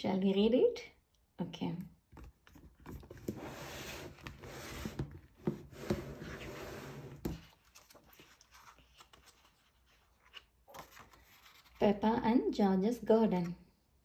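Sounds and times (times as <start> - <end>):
book pages handled: 2.1 - 11.8
book sliding against cardboard box: 3.2 - 7.4.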